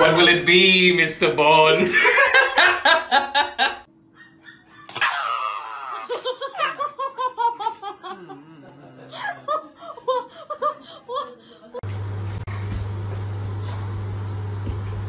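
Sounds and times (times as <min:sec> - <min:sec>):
dog yelping: 0:04.1 - 0:06.8.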